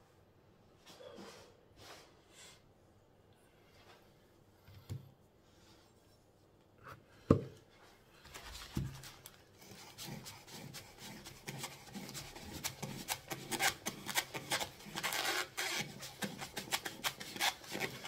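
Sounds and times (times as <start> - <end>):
knife sawing coir brick: 9.6 - 18.0.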